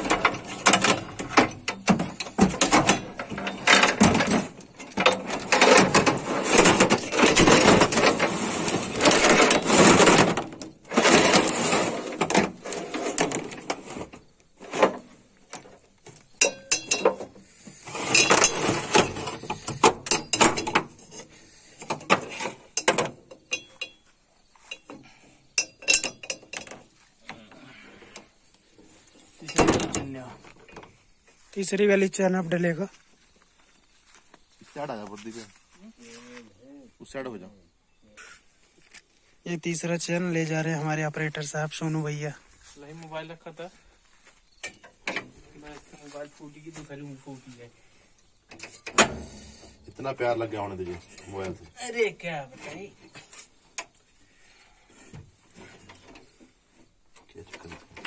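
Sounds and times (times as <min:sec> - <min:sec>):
steel chain clanking and rattling: 0:00.0 - 0:27.6, 0:29.1 - 0:31.0, 0:48.5 - 0:51.7.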